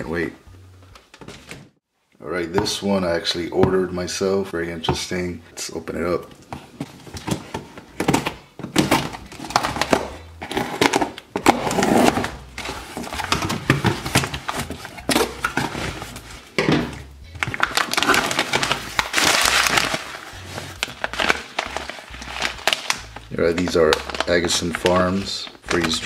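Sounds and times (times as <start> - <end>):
foil pouches rustling: 17.4 - 26.0
cardboard box being opened: 17.6 - 22.8.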